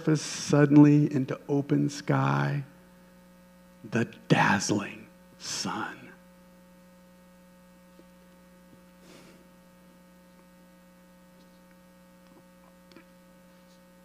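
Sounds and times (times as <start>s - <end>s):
electrical mains hum: 0.0s - 14.0s.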